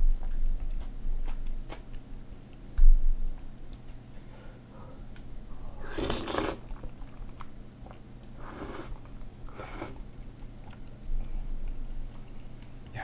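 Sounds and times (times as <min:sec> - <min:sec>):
chewing: 0:00.2 - 0:02.6, 0:05.8 - 0:13.0
noodle slurping: 0:05.8 - 0:07.1, 0:07.8 - 0:10.0.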